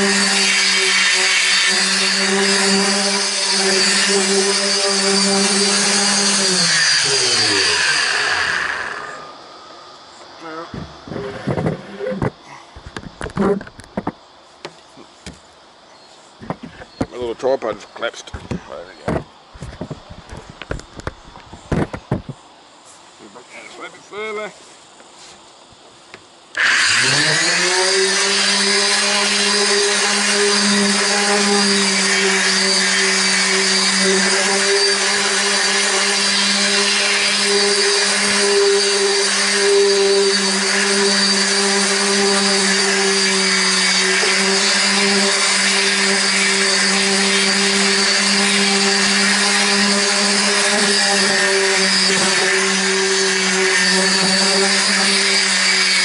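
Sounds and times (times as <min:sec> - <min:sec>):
orbital sander running: 0:00.0 - 0:14.2, 0:26.5 - 0:56.0.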